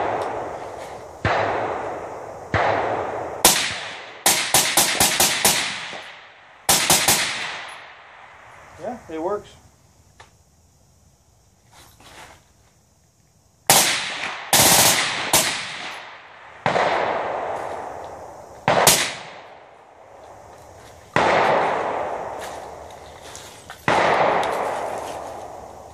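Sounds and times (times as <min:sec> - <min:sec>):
suppressed rifle shots: 0:01.2 - 0:01.9, 0:02.5 - 0:08.2, 0:13.7 - 0:19.6, 0:21.1 - 0:22.4, 0:23.8 - 0:25.6
rolling echo: 0:13.8 - 0:25.9.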